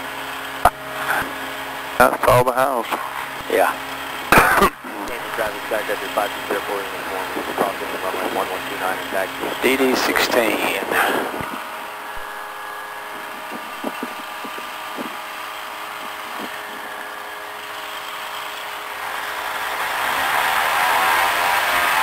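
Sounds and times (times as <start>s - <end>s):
small airplane engine idling: 0.0s - 22.0s.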